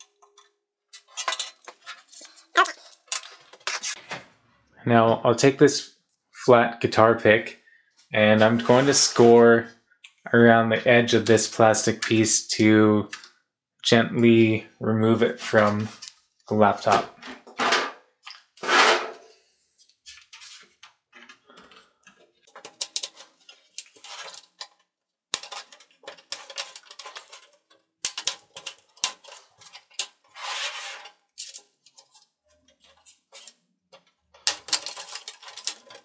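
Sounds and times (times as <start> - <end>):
plastic scraping on plastic: 0.0 - 4.2, 16.8 - 19.2, 19.9 - 36.0.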